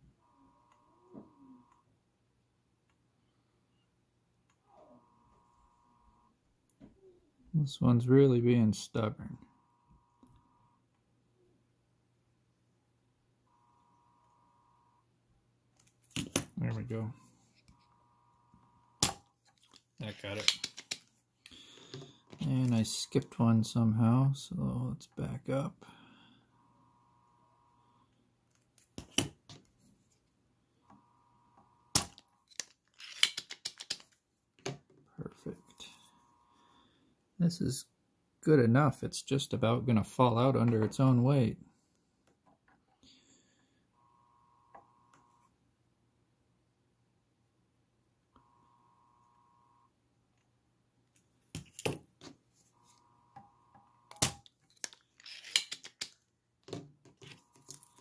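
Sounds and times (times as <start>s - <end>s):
faint steady high tone: 0.0s - 2.0s, 3.1s - 11.7s, 13.4s - 15.9s, 16.5s - 19.3s, 21.5s - 28.2s, 30.7s - 32.5s, 35.2s - 41.7s, 43.0s - 45.6s, 48.3s - 50.0s, 52.6s - 54.5s.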